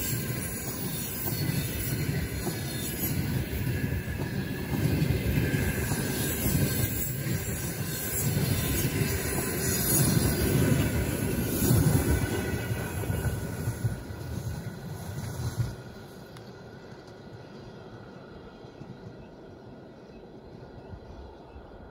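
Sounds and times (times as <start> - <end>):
faint high wheel squeal: 0.0 - 14.0
train wheels rumbling: 0.0 - 21.9.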